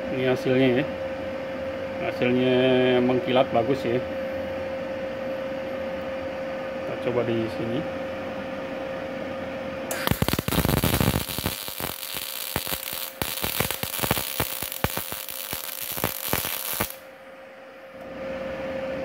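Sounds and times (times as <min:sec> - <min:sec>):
arc welding crackling: 0:09.9 - 0:17.1.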